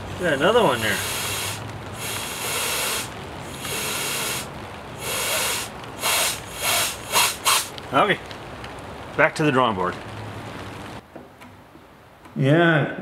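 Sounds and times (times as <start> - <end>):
compressed air hissing bursts: 0.2 - 7.7.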